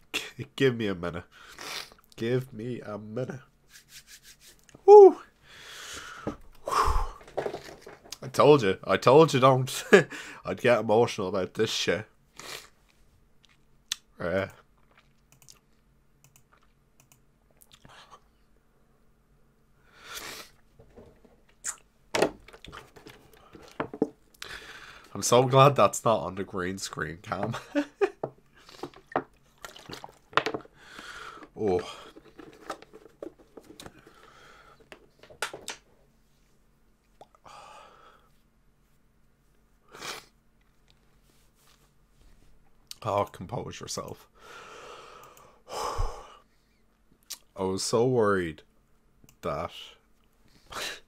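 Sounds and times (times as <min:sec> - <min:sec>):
man breathing unevenly: 0:05.4 - 0:07.3, 0:24.4 - 0:25.1, 0:30.6 - 0:32.4, 0:33.9 - 0:35.0, 0:44.4 - 0:46.5.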